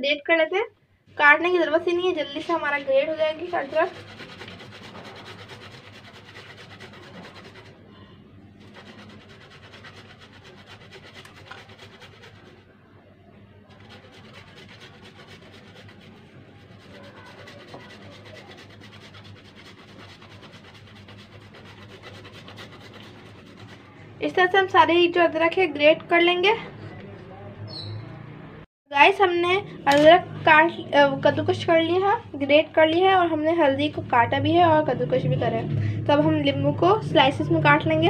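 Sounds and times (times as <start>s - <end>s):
ginger grated on metal grater: 2.4s - 7.8s, 8.6s - 12.6s, 13.7s - 23.9s.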